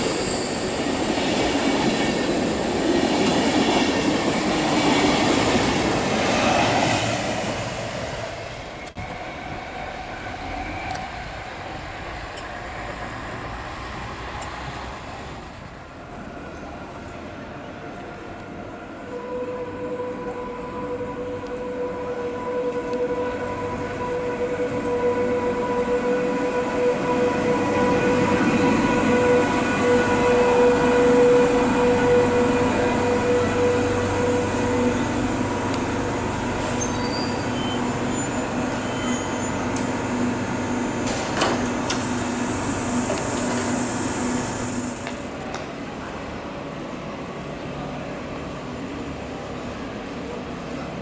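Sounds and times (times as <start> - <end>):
air hiss: 41.7 - 45.3.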